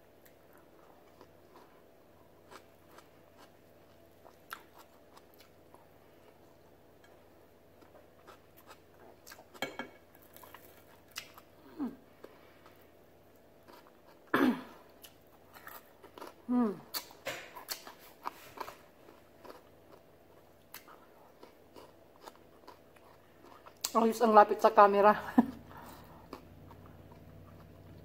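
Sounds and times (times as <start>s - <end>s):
person chewing food: 0.2s - 24.0s, 25.6s - 28.0s.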